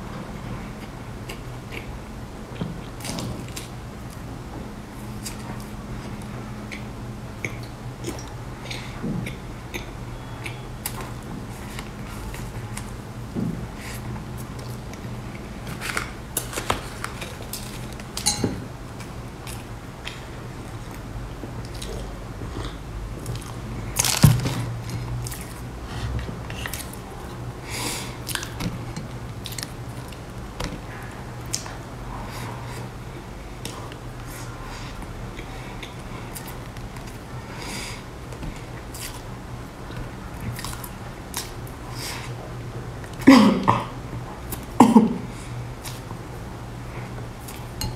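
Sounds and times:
steady low hum: 0.0 - 47.9
mouth eating noises: 0.8 - 3.7, 5.2 - 12.9
person chewing with wet smacks: 0.8 - 4.3, 4.9 - 27.5, 28.2 - 31.8, 35.0 - 37.3, 38.2 - 42.4, 46.9 - 47.9.

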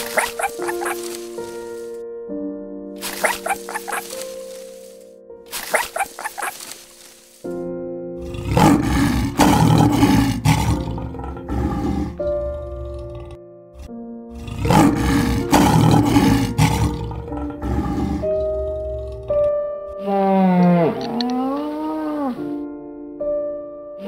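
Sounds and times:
large animal calling: 0.0 - 1.2
background music with held notes: 0.0 - 24.0.

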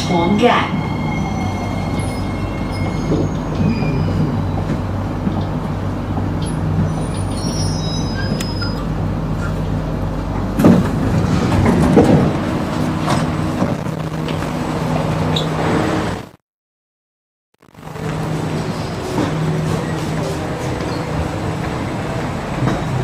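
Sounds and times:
train doors sliding open: 0.0 - 16.3, 18.0 - 23.0
train running with low hum: 0.0 - 16.4, 17.7 - 23.0
faint high brake squeaks: 6.4 - 9.5.

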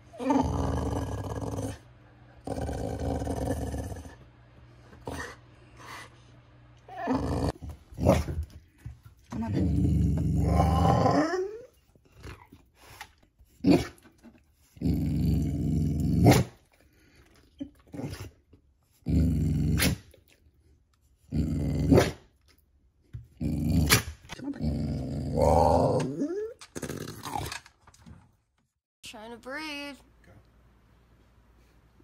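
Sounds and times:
dog growling vocalisation: 0.1 - 4.2, 6.9 - 8.3, 9.4 - 12.6, 14.8 - 16.6, 23.4 - 27.6.

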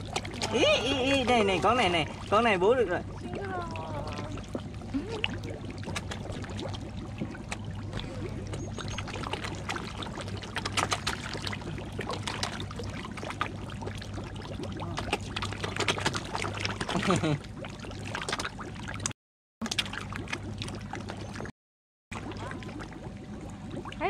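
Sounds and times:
steady low hum: 0.0 - 19.0
fish splashing at water surface: 0.0 - 21.5.

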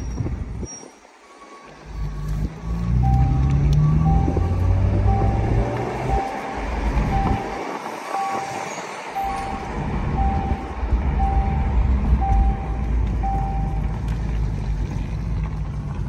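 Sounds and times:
car engine rumbling: 1.6 - 16.0
short beeps: 3.0 - 13.9.

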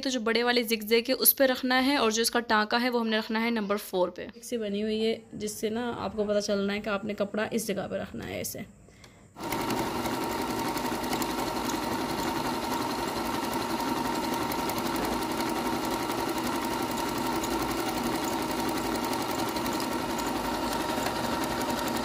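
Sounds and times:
sewing machine running: 9.4 - 22.0.

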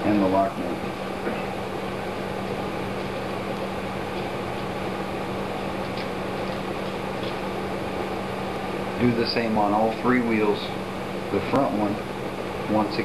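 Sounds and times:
low room hum and hiss: 0.0 - 13.0.

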